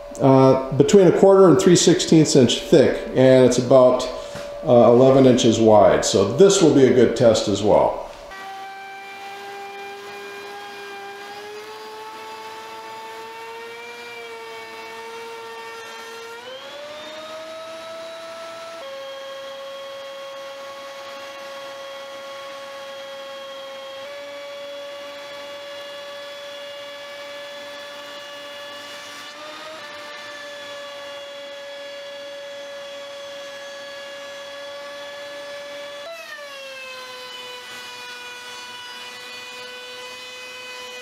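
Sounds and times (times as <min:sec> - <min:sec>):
planer motor whining: 0:03.6 - 0:41.0.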